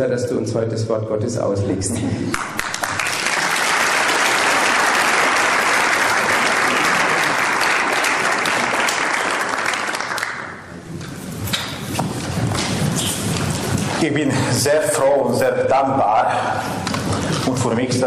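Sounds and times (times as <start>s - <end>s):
congregation applauding: 2.3s - 10.7s.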